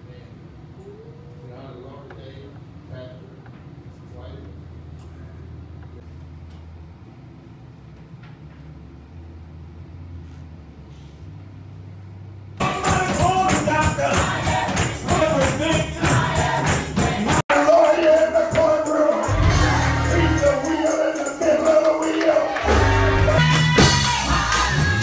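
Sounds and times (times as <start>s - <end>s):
man singing into a microphone: 12.6s - 14.3s, 17.5s - 25.0s
group singing gospel music: 12.6s - 25.0s
tambourine: 12.6s - 25.0s.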